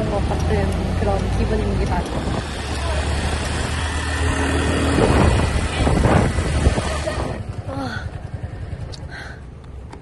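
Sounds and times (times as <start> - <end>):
road noise: 0.0 - 10.0
scooter engine hum: 0.0 - 10.0
wind rushing over microphone: 1.8 - 7.5.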